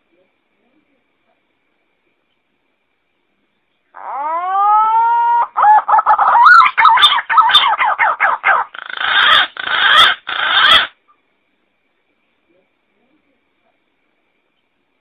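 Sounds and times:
harsh rasping bird notes: 0:05.3 - 0:11.0.

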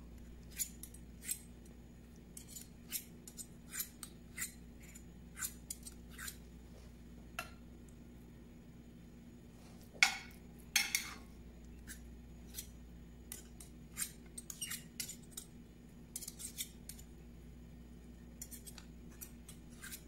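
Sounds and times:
metal spoons scraping a skillet: 0:00.5 - 0:01.5, 0:02.4 - 0:06.4, 0:13.3 - 0:15.5, 0:16.1 - 0:17.1, 0:18.4 - 0:20.0.

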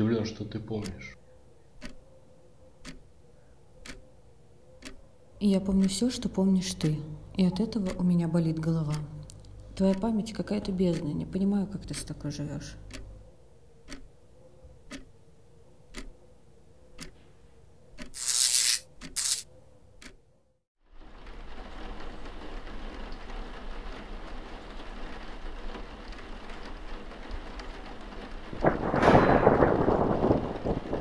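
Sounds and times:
clock ticking: 0:00.3 - 0:14.2, 0:14.8 - 0:15.2, 0:15.9 - 0:16.2, 0:16.9 - 0:17.2, 0:18.0 - 0:18.2, 0:20.0 - 0:20.2
rain-like rushing noise: 0:20.9 - 0:31.0.

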